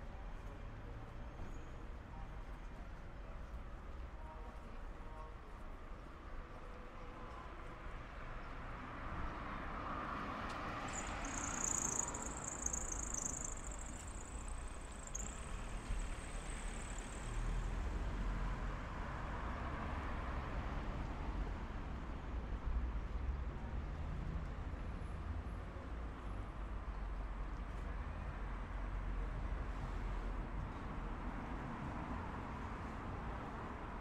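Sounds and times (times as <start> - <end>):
cars passing: 8.4 - 34.0.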